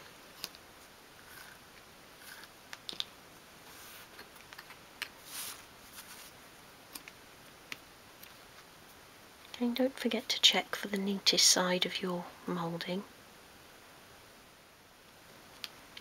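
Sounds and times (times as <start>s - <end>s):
soft rustles: 3.6s - 7.2s.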